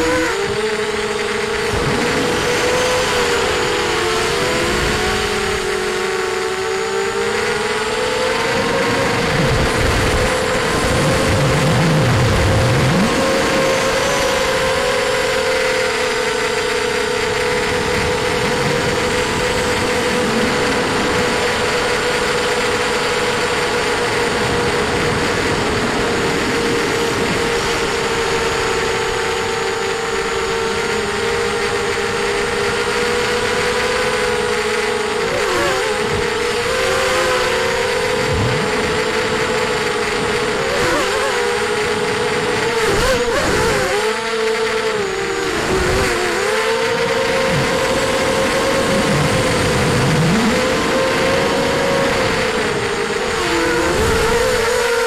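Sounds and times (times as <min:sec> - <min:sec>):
drone motors whining: 0:00.0 - 0:55.0
wind rush: 0:08.3 - 0:13.8.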